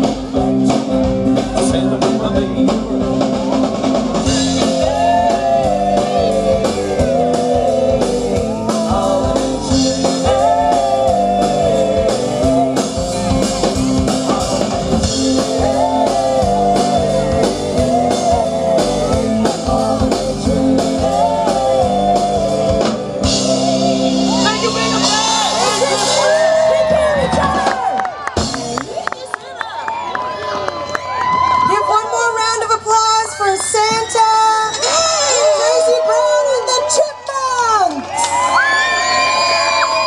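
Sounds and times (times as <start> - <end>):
rock band playing: 0.0 - 29.5.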